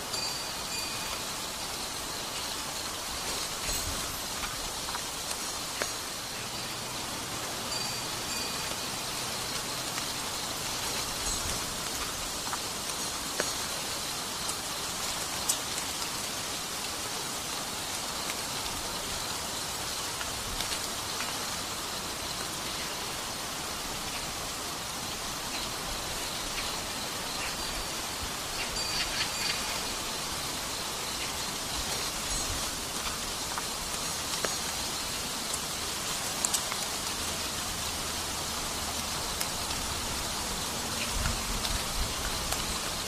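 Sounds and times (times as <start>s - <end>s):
even outdoor hiss: 0.0s - 43.0s
light ticks: 36.4s - 36.9s.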